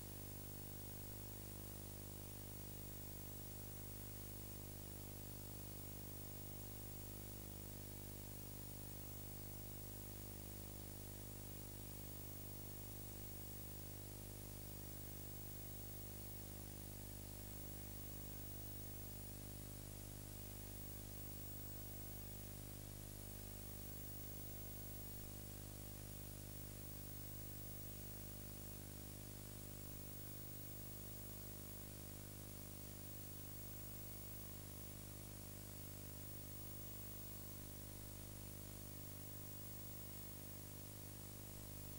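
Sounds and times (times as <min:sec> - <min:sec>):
low mains hum: 0:00.0 - 0:41.9.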